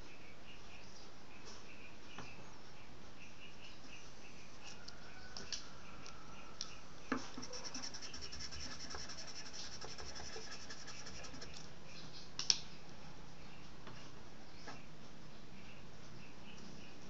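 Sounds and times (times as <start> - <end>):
charcoal scratching on paper: 7.2 - 11.6
steady hiss: 7.4 - 11.6.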